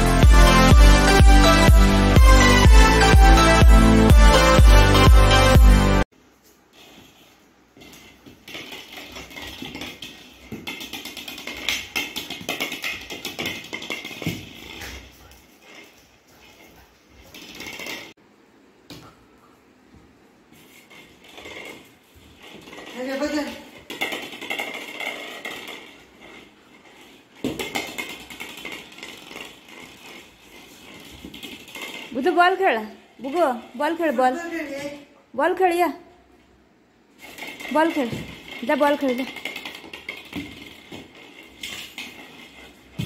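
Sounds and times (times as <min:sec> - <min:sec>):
puppy scrabbling on hard floor: 0:06.4 - 0:18.2, 0:20.5 - 0:32.4, 0:37.2 - 0:43.0
dog claws clicking on stone floor: 0:07.8 - 0:18.2.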